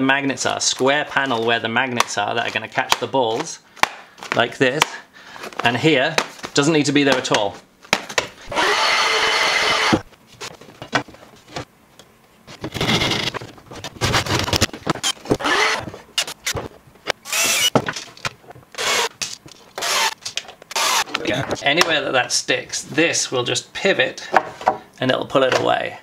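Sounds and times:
handsaw cutting wood: 0:08.5 - 0:10.0, 0:15.4 - 0:15.9, 0:17.3 - 0:17.7, 0:19.8 - 0:20.2, 0:20.8 - 0:21.1
drill-driver driving screws: 0:08.5 - 0:10.1, 0:12.7 - 0:13.3, 0:15.0 - 0:16.4, 0:17.2 - 0:17.8, 0:18.8 - 0:19.2, 0:19.8 - 0:21.1.

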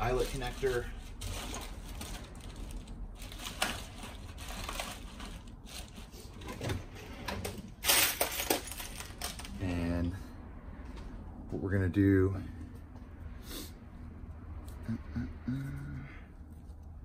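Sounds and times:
rustling clatter: 0:00.2 - 0:09.6
small parts clicking and rattling: 0:07.8 - 0:09.6.

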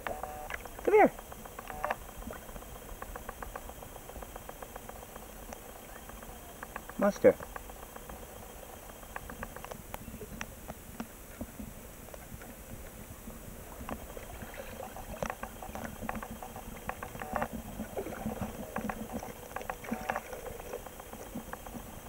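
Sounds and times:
water splashing and lapping: 0:13.7 - 0:22.0.

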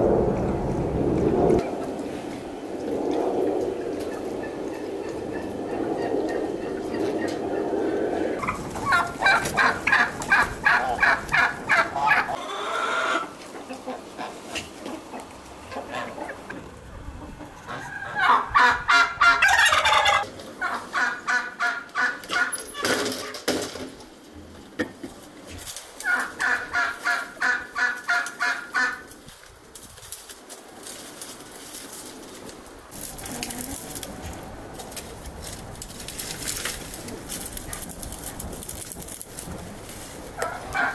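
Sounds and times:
fowl calling: 0:08.4 - 0:16.7, 0:17.3 - 0:22.6, 0:26.0 - 0:29.1, 0:40.4 - 0:40.9.

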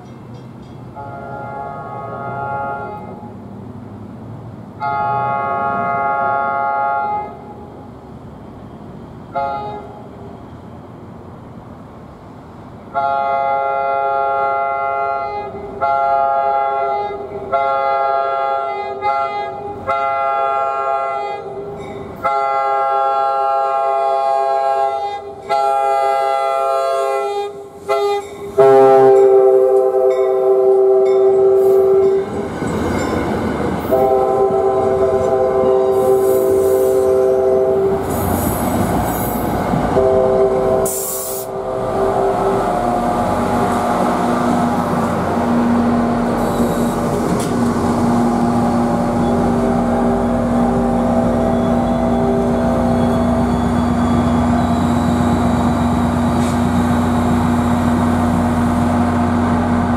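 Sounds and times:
train rumbling past: 0:00.0 - 0:59.9
train horn blasts: 0:00.9 - 0:03.3, 0:04.8 - 0:07.7, 0:09.3 - 0:10.1, 0:12.9 - 0:32.4, 0:33.8 - 0:39.3, 0:39.9 - 0:47.2, 0:48.4 - 0:56.5
wheel squeal: 0:51.4 - 0:57.0.

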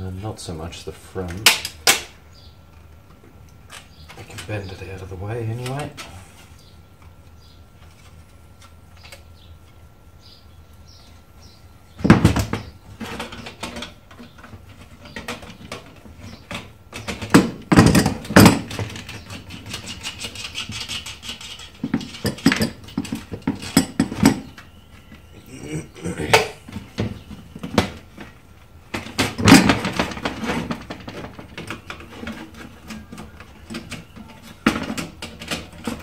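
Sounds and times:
metal and plastic clattering: 0:12.0 - 0:25.2, 0:26.3 - 0:36.0.

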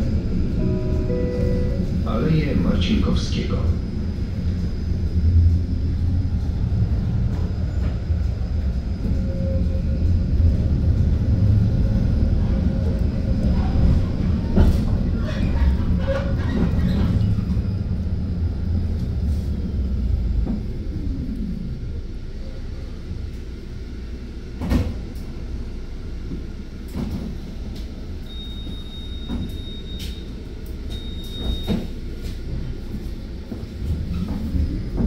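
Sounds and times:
high steady beep: 0:00.6 - 0:01.9.

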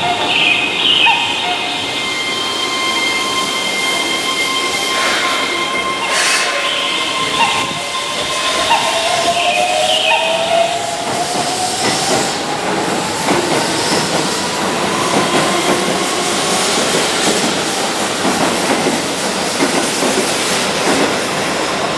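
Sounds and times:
train wheels clattering on rails: 0:08.5 - 0:21.9.

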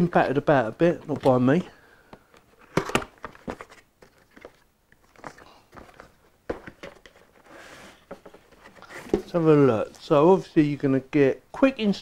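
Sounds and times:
cardboard box being handled: 0:03.2 - 0:09.5.

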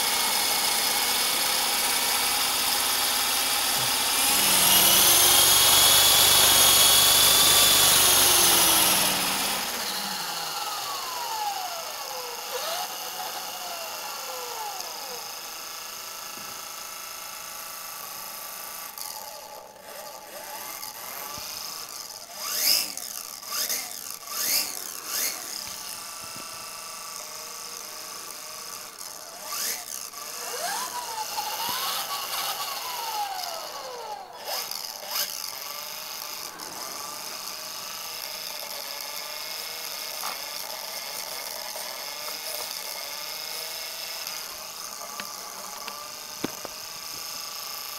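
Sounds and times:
rc helicopter motor whine: 0:00.0 - 0:47.9
rotor whooshes: 0:34.5 - 0:39.8.

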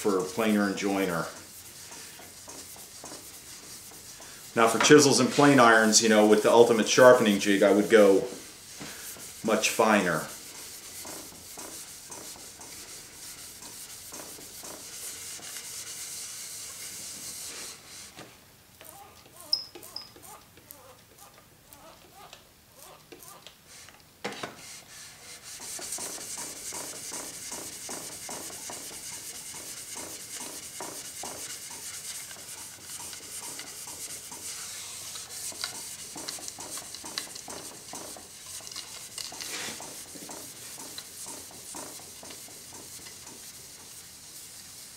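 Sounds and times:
blade scraping on abrasive film: 0:25.5 - 0:43.8.

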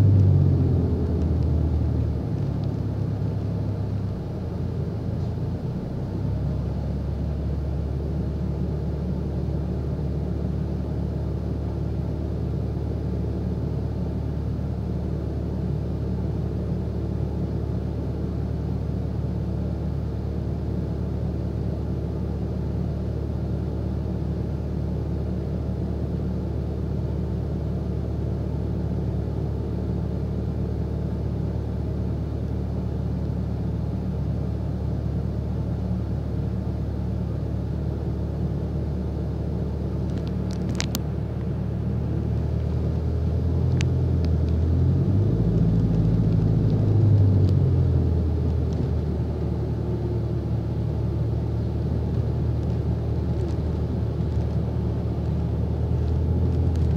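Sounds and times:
bus engine humming: 0:00.0 - 0:21.0, 0:26.0 - 0:56.9.

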